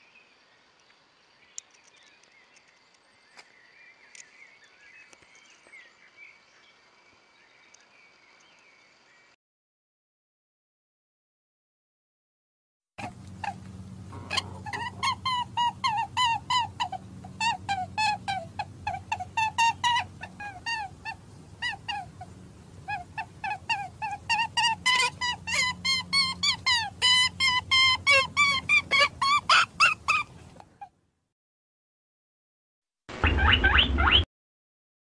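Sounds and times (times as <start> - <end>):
steady low hum: 13.0 - 30.6
high squeaky animal calls: 13.0 - 30.9.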